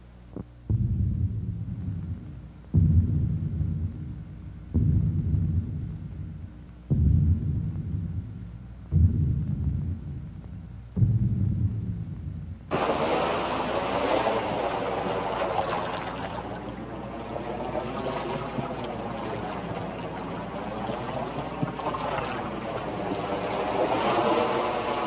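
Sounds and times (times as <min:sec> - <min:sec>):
rushing noise with hollow phasing: 0:12.7 - 0:25.0.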